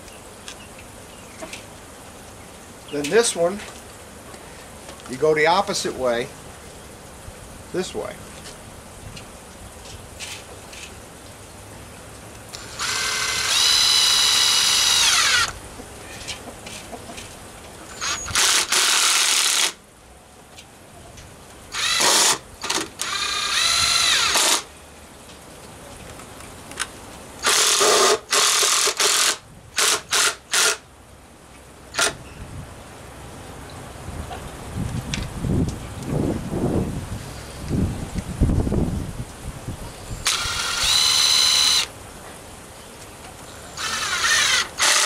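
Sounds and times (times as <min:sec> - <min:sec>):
cordless drill motor whine: 0:12.5 - 0:15.6, 0:18.0 - 0:19.8, 0:21.7 - 0:24.6, 0:27.4 - 0:30.8, 0:40.2 - 0:41.9, 0:43.8 - 0:45.0.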